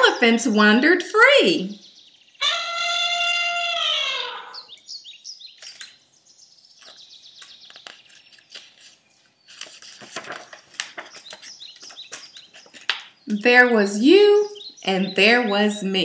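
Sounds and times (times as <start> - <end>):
high falling chirps: 1.8 - 6.0
book pages rustling: 6.8 - 13.2.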